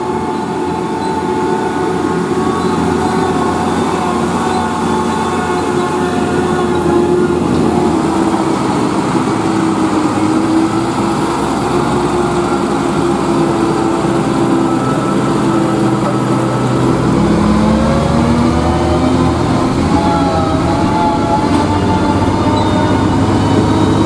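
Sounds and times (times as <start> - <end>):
diesel truck engine running: 0.0 - 24.0.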